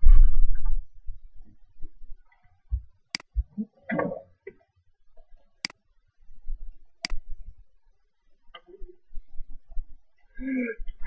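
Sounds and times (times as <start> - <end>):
faint low knocks: 2.7 - 4.2.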